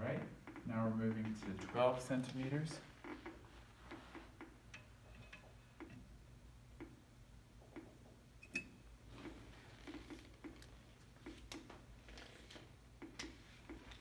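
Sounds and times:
geiger counter clicking: 0.4 - 2.6.

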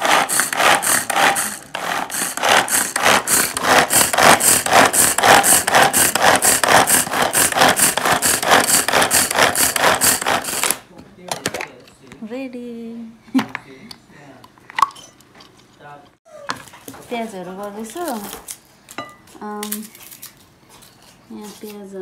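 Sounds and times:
pull-cord food chopper whirring: 0.0 - 10.8.

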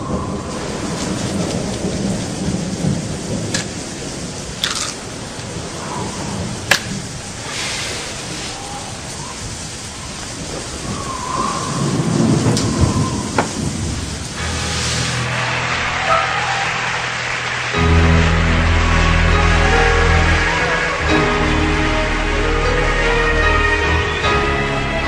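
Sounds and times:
rolling thunder: 0.0 - 22.9
rain falling: 0.0 - 25.0
low rumble: 8.5 - 24.3
sharp thunder cracks: 10.4 - 18.8.

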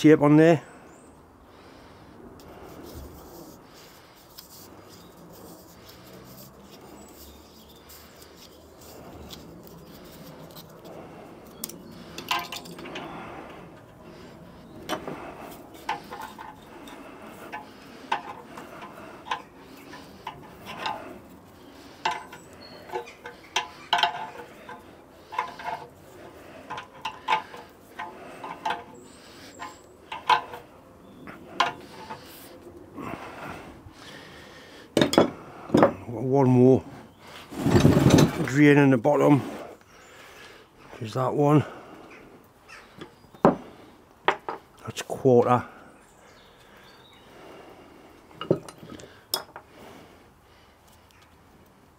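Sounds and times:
faint handling sounds: 2.4 - 32.8
spanner clinking on metal: 11.6 - 13.0, 15.8 - 21.1, 22.0 - 26.0, 26.6 - 30.7.

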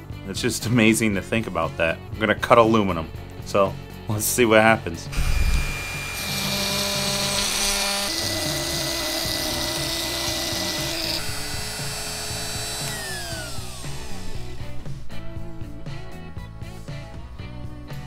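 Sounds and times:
background music: 0.0 - 18.0
router spindle milling metal: 5.2 - 14.8.

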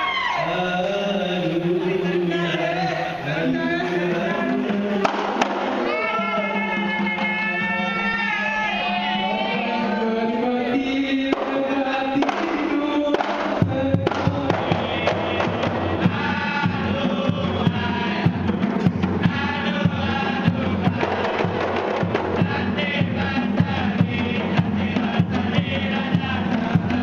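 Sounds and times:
men singing together: 0.1 - 27.0
frame drums beating: 4.9 - 8.0, 11.3 - 27.0.

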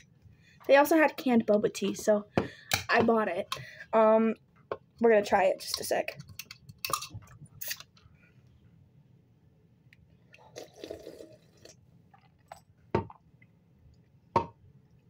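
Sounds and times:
sipping and swallowing: 10.2 - 13.3.

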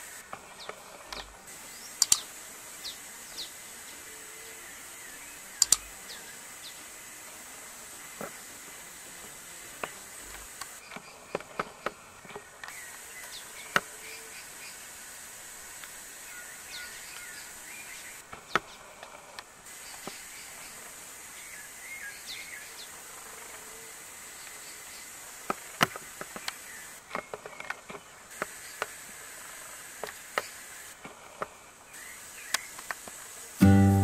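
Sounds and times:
small birds chirping: 0.0 - 8.8, 16.1 - 18.8, 31.9 - 34.0
sharp irregular clicks: 2.0 - 2.2, 5.6 - 5.9.

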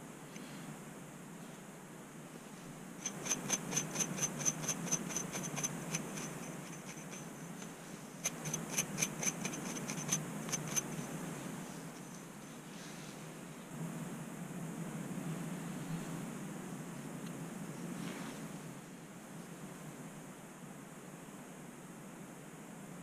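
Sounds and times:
scraping strokes through hair: 2.6 - 13.2, 17.9 - 18.6.

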